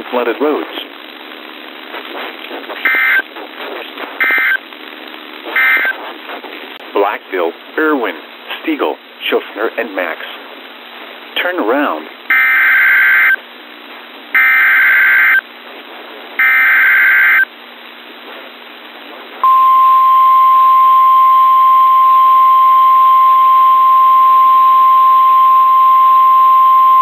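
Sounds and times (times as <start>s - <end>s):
harsh buzzing data bursts: 1.0s - 3.5s, 4.2s - 6.0s, 12.3s - 13.4s, 14.3s - 15.4s, 16.4s - 17.5s, 19.4s - 27.0s
steady warning alarm tone: 2.9s - 3.2s, 4.2s - 4.6s, 5.6s - 6.0s, 12.3s - 13.4s, 14.4s - 15.4s, 16.4s - 17.5s, 19.4s - 27.0s.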